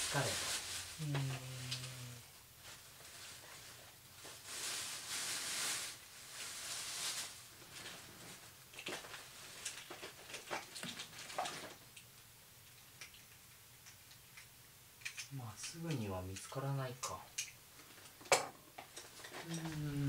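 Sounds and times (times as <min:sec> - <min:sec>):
rustling hiss: 0:00.0 - 0:12.2, 0:14.4 - 0:20.0
small objects clicking and knocking: 0:08.7 - 0:19.8.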